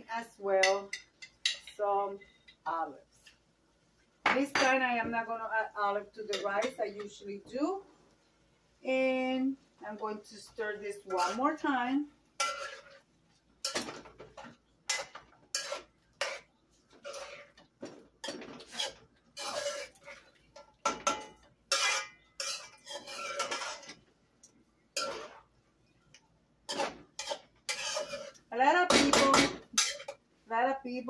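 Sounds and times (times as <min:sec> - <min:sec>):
spoon stirring in a metal pot: 0:00.6 - 0:02.6, 0:06.2 - 0:07.2, 0:10.1 - 0:26.0, 0:26.7 - 0:30.2.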